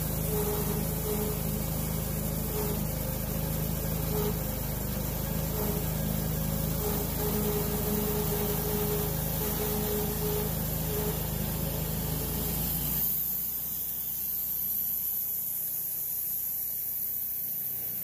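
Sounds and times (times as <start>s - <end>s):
bandsaw mill sawing log: 0.0s - 13.1s.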